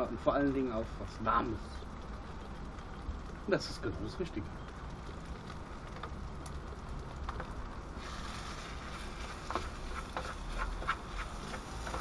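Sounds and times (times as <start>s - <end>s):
food sizzling in a pan: 3.6s - 12.0s.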